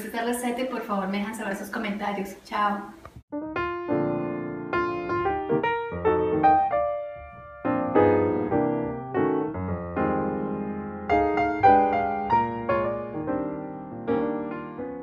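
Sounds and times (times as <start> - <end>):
piano music: 3.3 - 15.0.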